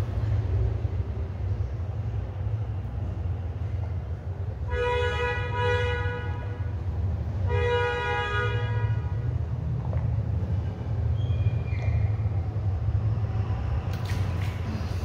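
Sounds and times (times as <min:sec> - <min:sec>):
horn blasts: 0:04.6 - 0:06.8, 0:07.4 - 0:09.3.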